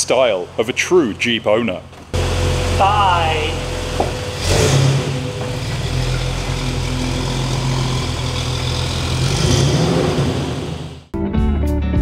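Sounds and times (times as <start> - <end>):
engine running at low revs: 2.1 - 11.1.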